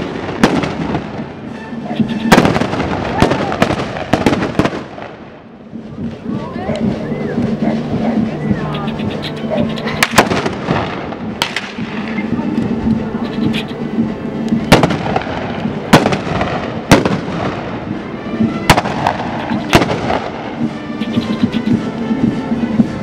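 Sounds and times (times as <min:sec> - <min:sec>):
blunderbuss gunshots: 0:00.0 - 0:01.4, 0:02.0 - 0:05.3, 0:09.5 - 0:12.2, 0:14.7 - 0:17.9, 0:18.6 - 0:21.8.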